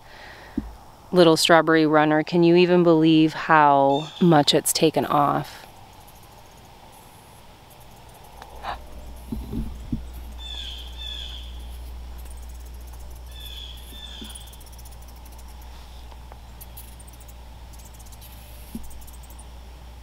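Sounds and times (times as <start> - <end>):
bird calling: 3.9 - 4.4, 5.6 - 16.0
faint insect ticking: 3.9 - 20.0
steady low rumble: 4.4 - 20.0.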